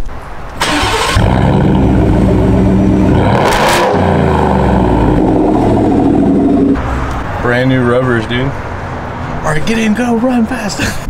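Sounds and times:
truck engine starting and running: 0:00.5 - 0:08.9.

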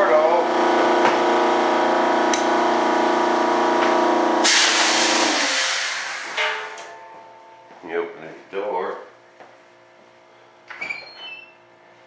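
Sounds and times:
air compressor motor running: 0:00.0 - 0:06.8
hiss of released air: 0:04.4 - 0:06.4.

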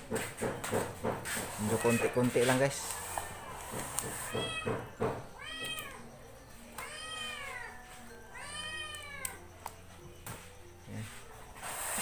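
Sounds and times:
cat meowing: 0:01.6 - 0:02.5, 0:03.2 - 0:06.1, 0:06.8 - 0:09.5.

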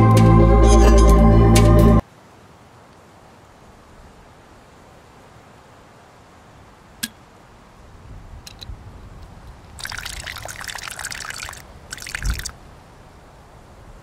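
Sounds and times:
water pouring into metal mug: 0:09.8 - 0:12.5.

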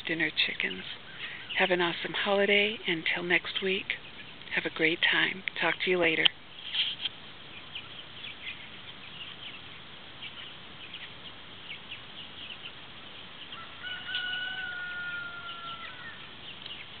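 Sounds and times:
chicks peeping and chirping: 0:00.0 - 0:17.0
rooster crowing: 0:13.5 - 0:16.3.

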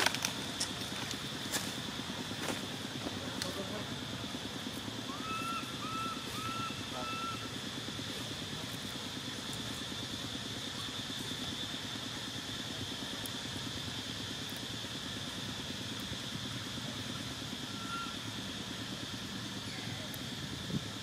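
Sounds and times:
engine idling: 0:00.0 - 0:21.0
high-pitched drone: 0:04.7 - 0:09.2, 0:17.5 - 0:18.6.

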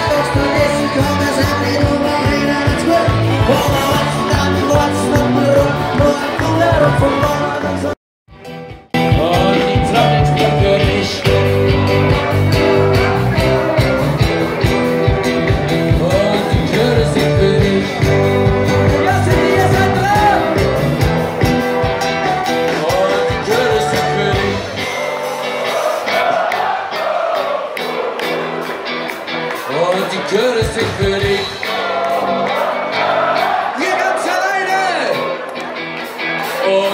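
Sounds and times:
person singing: 0:00.0 - 0:08.0, 0:09.0 - 0:21.1, 0:22.3 - 0:26.3
live band playing rock music: 0:00.0 - 0:36.9.

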